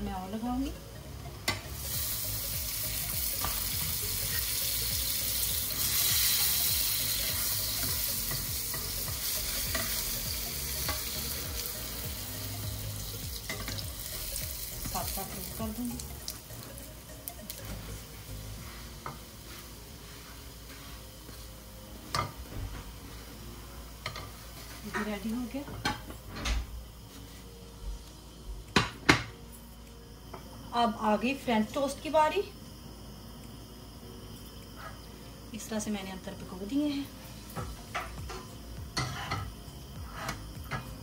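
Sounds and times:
butter sizzling in frying pan: 1.5s - 21.4s.

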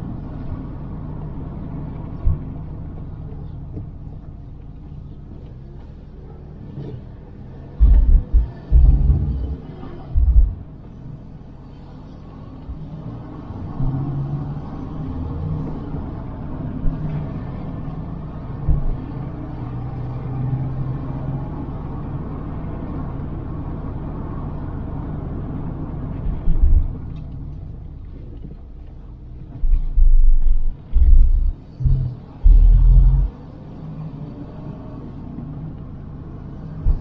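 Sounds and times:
car engine and road rumble: 0.0s - 37.0s
loud low thumping surges: 7.8s - 9.6s, 10.2s - 10.7s, 31.0s - 33.3s.

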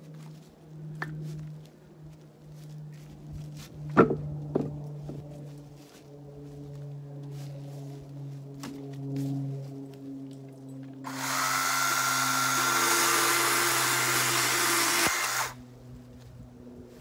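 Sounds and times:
chainsaw cutting wood: 11.1s - 15.6s.

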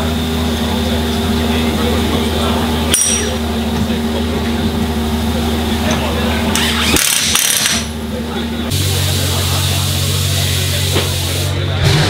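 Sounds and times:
impact wrench rattling: 6.6s - 7.9s.

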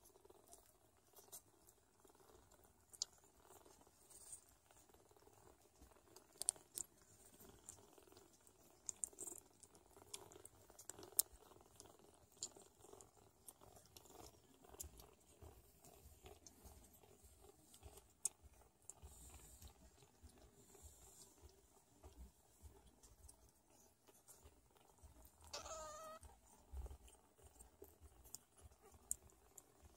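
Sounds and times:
soft rustling on blanket: 0.0s - 29.9s
kittens suckling wet clicks: 0.2s - 29.9s.

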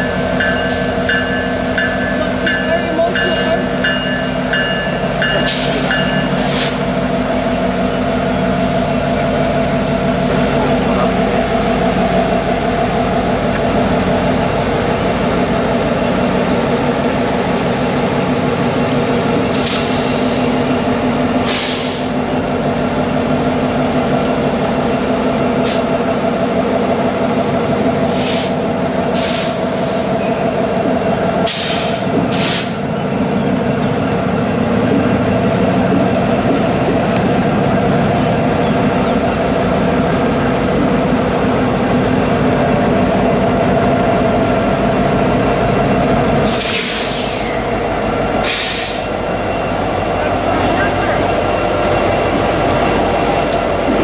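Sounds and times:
diesel locomotive engine drone: 0.0s - 54.0s
short air hisses: 21.5s - 22.2s, 28.1s - 28.6s, 29.2s - 30.1s, 31.5s - 32.8s, 46.5s - 47.5s, 48.4s - 49.2s.

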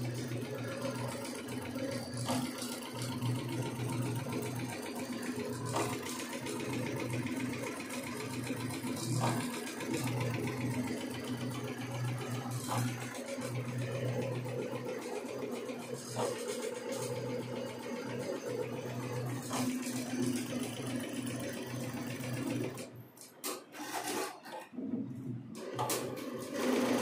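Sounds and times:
embroidery machine stitching: 0.0s - 27.0s.

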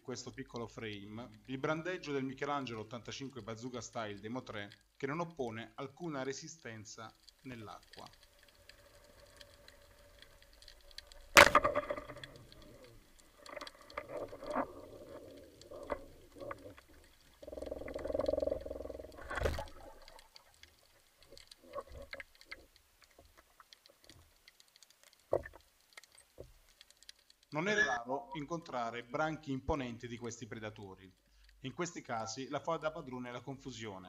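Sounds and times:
underwater clicks and knocks: 7.2s - 27.5s
dull underwater rumble: 8.2s - 22.7s
speargun sharp crack: 11.3s - 11.8s.

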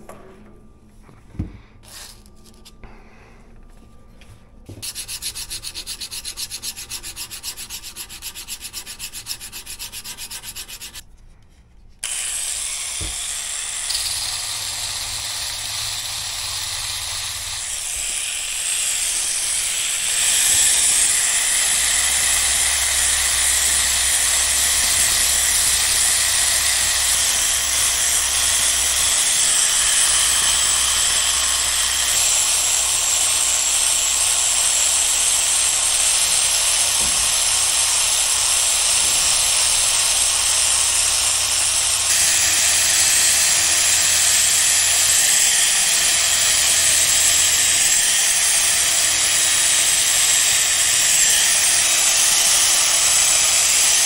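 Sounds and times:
sanding steel blade: 4.8s - 11.0s, 12.0s - 54.0s
motor hum with hiss: 12.0s - 45.7s.

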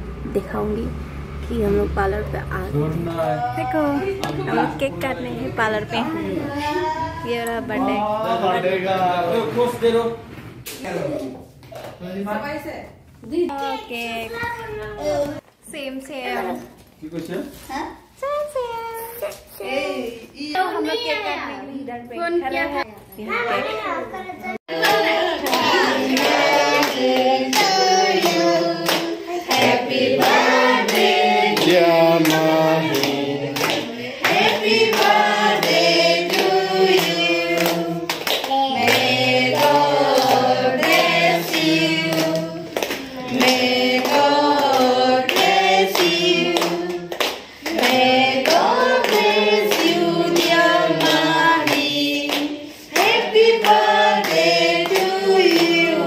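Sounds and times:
group singing: 24.7s - 56.0s
people clapping: 24.7s - 56.0s.

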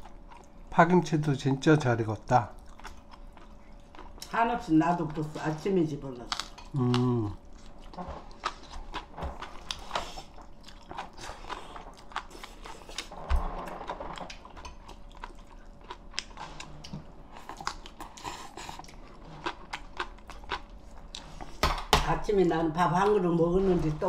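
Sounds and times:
person chewing: 0.0s - 0.7s, 2.2s - 4.4s, 6.3s - 21.6s.

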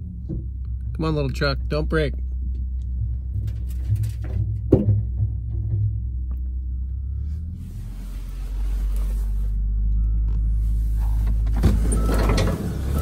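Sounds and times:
heavy engine rumbling: 0.0s - 13.0s
knock: 4.7s - 5.8s.

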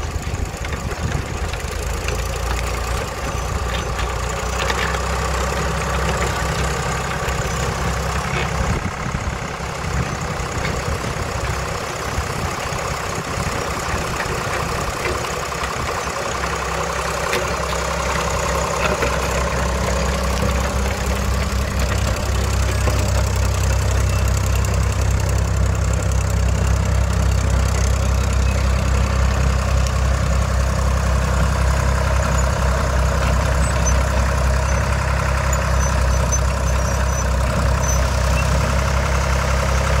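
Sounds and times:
diesel engine running: 0.0s - 40.0s.

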